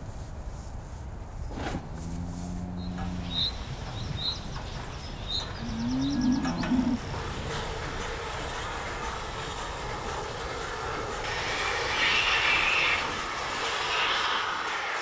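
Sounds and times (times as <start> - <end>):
cows mooing: 1.9 - 3.5, 5.6 - 7.0
small birds chirping: 2.8 - 7.0.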